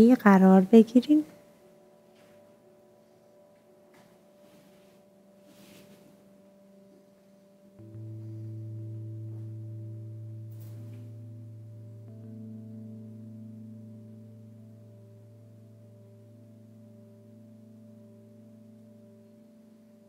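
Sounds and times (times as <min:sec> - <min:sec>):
singing bowl ringing: 0:01.3 - 0:20.0.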